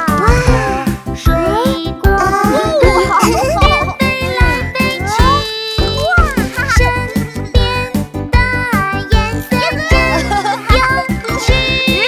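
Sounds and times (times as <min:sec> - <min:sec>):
children's song with bouncy beat: 0:00.0 - 0:12.0.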